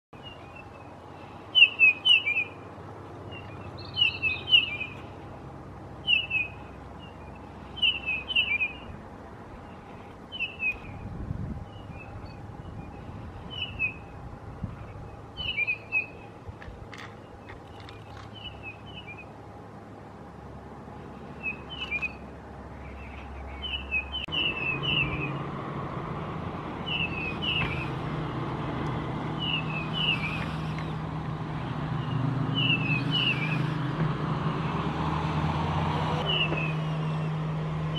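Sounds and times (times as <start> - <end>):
bird chirping: 0.2 - 5.2, 6.0 - 16.4, 17.0 - 19.4, 21.2 - 25.4, 26.8 - 28.0, 29.4 - 31.0, 32.0 - 33.8, 36.2 - 37.3.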